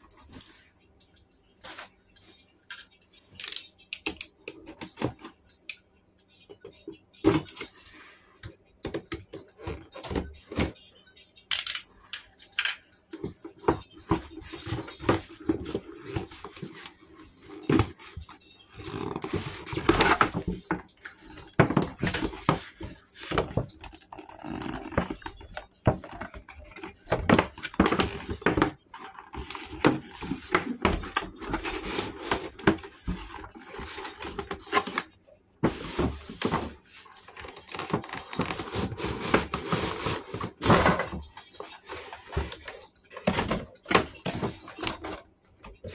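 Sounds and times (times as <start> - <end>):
packaging rustling and scraping: 13.2 - 45.9.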